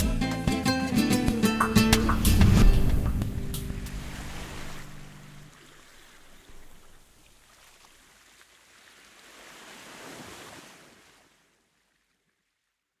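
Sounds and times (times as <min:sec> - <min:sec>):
surf washing on beach: 0:01.9 - 0:11.4.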